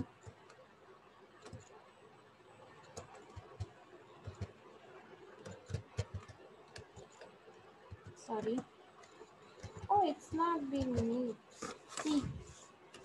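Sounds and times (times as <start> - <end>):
computer keyboard keystrokes: 1.4 - 1.7, 2.8 - 4.6, 5.4 - 7.3, 7.9 - 11.3.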